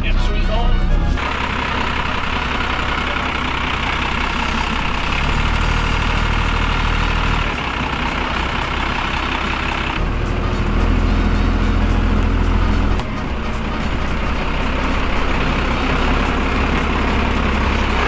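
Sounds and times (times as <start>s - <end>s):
truck diesel engine idling: 0.0s - 18.0s.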